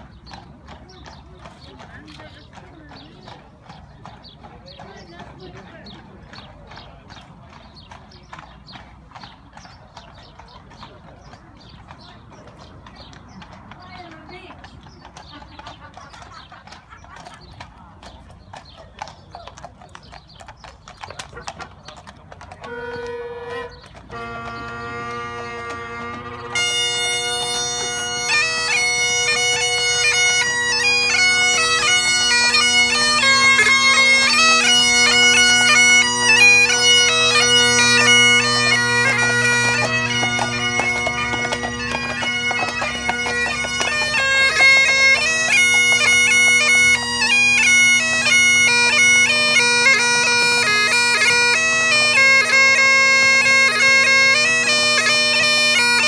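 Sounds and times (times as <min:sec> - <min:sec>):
bagpipe chanter melody: 0:22.6 - 0:56.0
bagpipe drones: 0:22.6 - 0:56.0.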